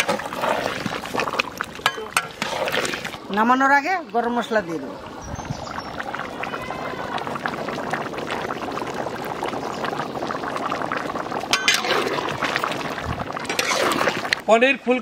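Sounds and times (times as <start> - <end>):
curry bubbling in a pot: 0.0 - 14.5
spatula clinking on metal pot: 11.5 - 11.9.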